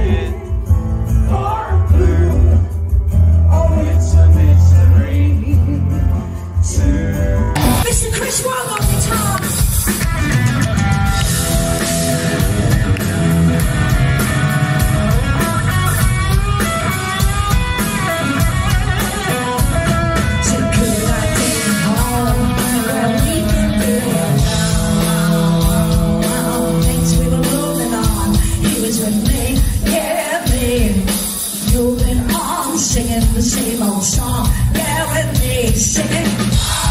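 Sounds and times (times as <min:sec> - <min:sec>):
live rock band playing: 0:00.0 - 0:36.9
person singing: 0:20.2 - 0:36.9.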